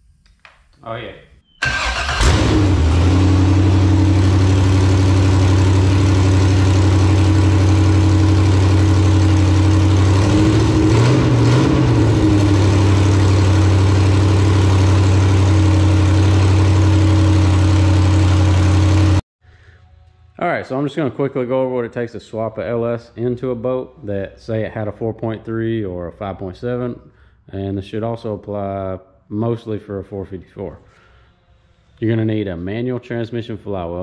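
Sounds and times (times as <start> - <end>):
engine idling through open headers: 1.6 - 10.9, 12.0 - 19.2.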